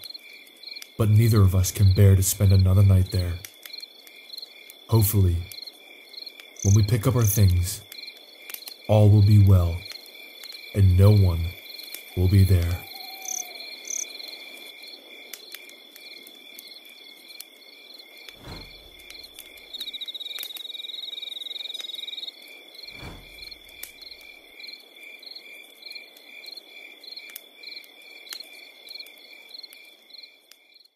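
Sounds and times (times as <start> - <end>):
campfire crackles: 0.0 - 30.9
crickets chirping: 0.0 - 30.9
loud insect trill: 0.0 - 30.9.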